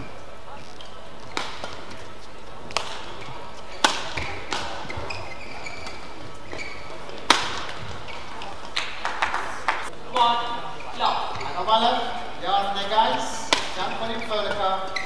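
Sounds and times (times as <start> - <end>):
shoes squeaking on mat: 0.0 - 9.0, 10.2 - 15.0
rackets hitting shuttlecock: 0.8 - 10.5, 13.0 - 15.0.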